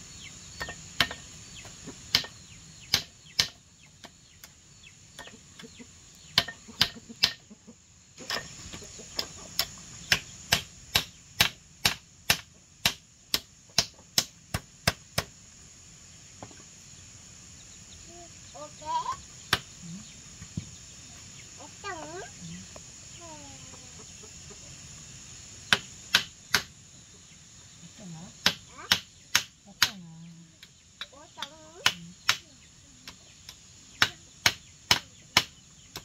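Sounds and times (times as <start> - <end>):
hammer striking bamboo slats: 0.6 - 1.3, 2.1 - 4.1, 6.4 - 7.4, 9.2 - 15.3, 25.7 - 26.7, 34.0 - 36.0.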